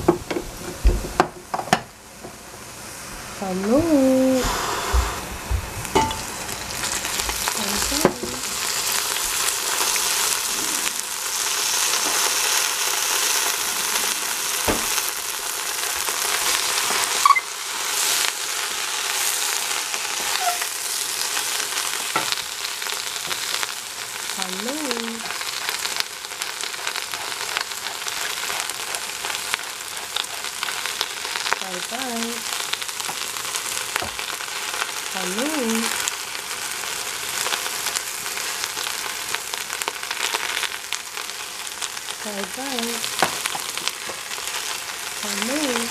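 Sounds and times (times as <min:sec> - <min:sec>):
cabbage sizzling in hot oil: 0:00.0 - 0:45.9.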